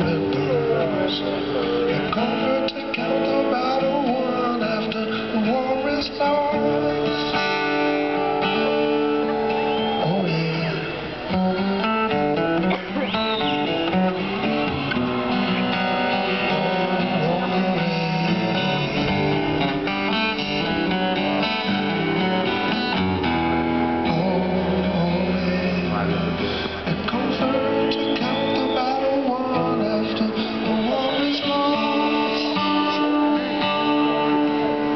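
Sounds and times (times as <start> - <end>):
person singing: 0.0 - 8.7, 16.1 - 21.3, 23.9 - 34.9
strummed acoustic guitar: 0.0 - 34.9.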